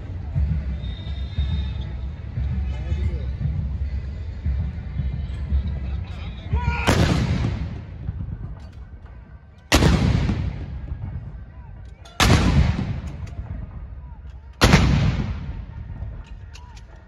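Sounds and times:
field guns firing with echo: 0:06.7 - 0:09.0, 0:09.6 - 0:17.0.

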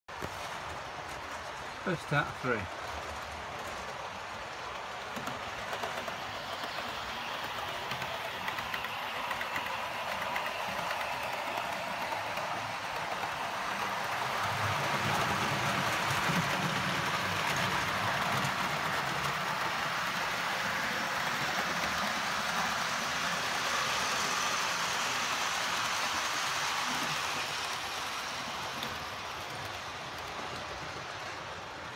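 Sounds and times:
model train wheels clattering: 0:02.7 - 0:31.9
model train motor whir: 0:05.4 - 0:14.7, 0:19.4 - 0:31.2.

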